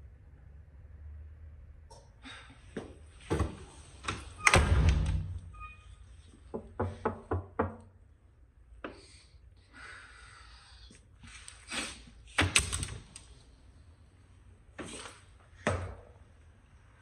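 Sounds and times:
door banging shut: 4.4s - 5.5s
knocking on door: 6.6s - 7.8s.

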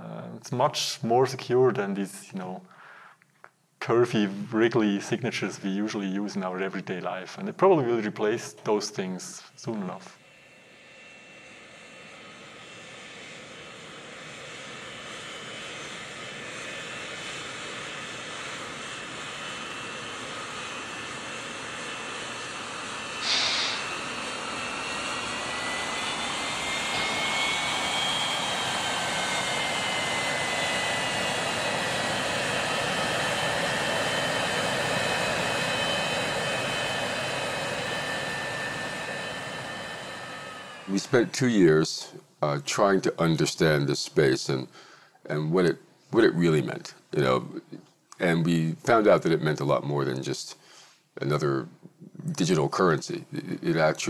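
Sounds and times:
high turbine whine: 3.8s - 50.5s, 51.2s - 54.0s
jet engines running: 3.8s - 54.0s
burst of hiss: 23.2s - 24.0s.

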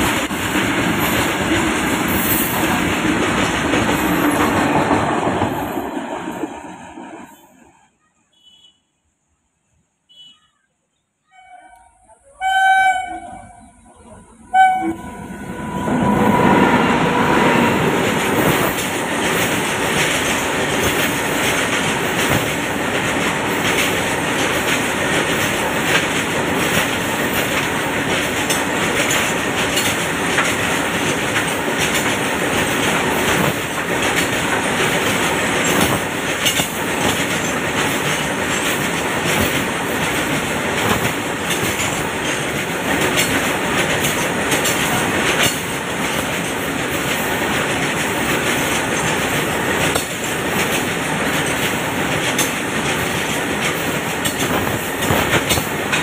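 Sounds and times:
freight wagons rolling on rails: 0.0s - 7.6s, 17.6s - 56.0s
clickety-clack of rail joints: 0.0s - 7.7s, 15.8s - 56.0s
train horn: 11.3s - 13.8s, 14.5s - 16.3s.

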